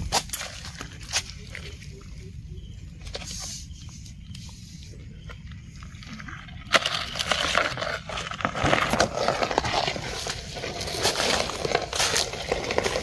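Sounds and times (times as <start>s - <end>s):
dry leaves crunching underfoot: 6.7s - 13.0s.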